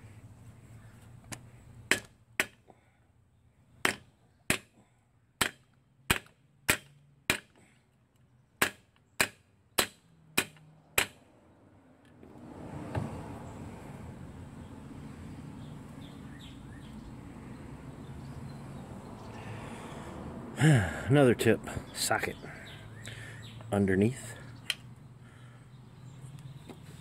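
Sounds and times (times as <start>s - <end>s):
hammer striking metal: 8.6s - 11.2s.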